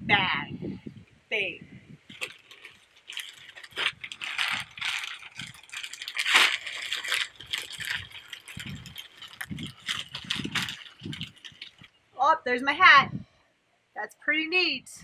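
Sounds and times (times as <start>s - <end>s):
plastic packaging tearing: 2.1s - 12.0s
plastic packaging crinkling: 2.1s - 12.1s.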